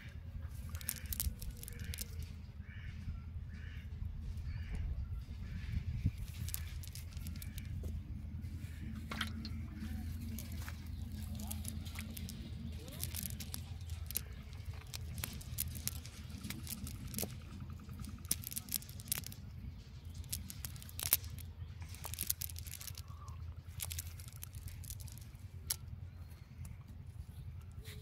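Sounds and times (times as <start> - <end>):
steady low rumble: 0.0 - 28.0
clicks and rustles of net handling: 0.5 - 2.4, 6.0 - 8.0, 8.7 - 25.9.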